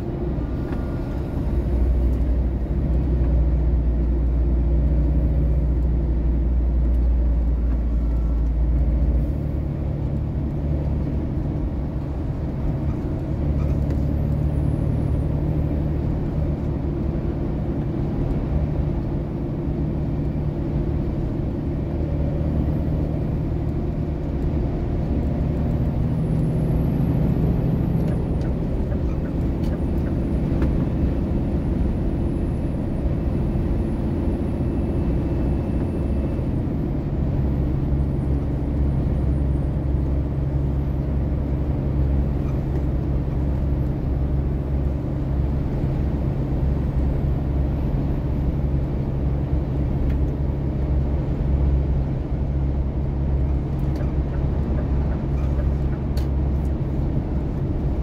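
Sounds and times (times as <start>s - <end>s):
engine drone: 0.0s - 58.0s.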